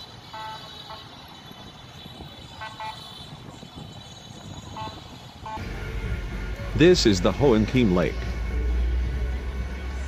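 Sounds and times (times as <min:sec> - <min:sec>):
distant city traffic rumbling: 0:00.0 - 0:10.0
vehicle horn toots: 0:00.2 - 0:01.4, 0:02.4 - 0:03.5, 0:04.6 - 0:05.7.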